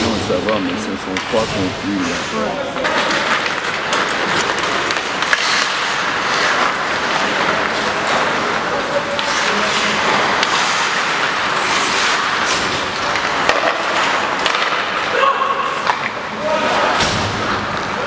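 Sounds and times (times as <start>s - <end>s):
skates scraping on ice: 0.0s - 18.0s
stick or puck clack: 2.9s - 7.9s, 11.6s - 15.2s, 15.8s - 16.2s.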